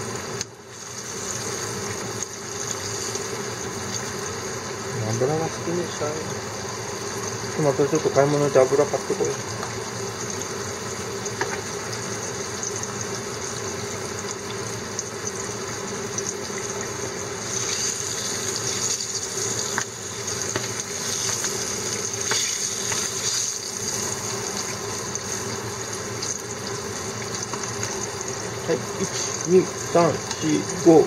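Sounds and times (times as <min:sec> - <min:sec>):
fish frying in hot oil: 0:00.0 - 0:31.0.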